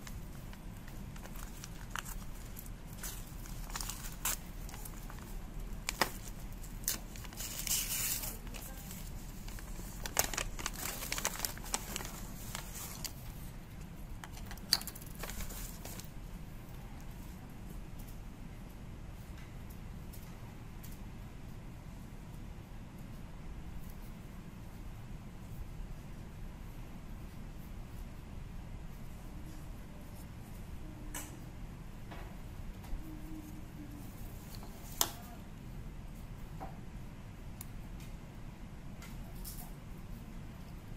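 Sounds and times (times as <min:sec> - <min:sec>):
paper rustling and crinkling: 0:00.0 - 0:13.5, 0:14.2 - 0:16.2
low background hum: 0:00.0 - 0:40.9.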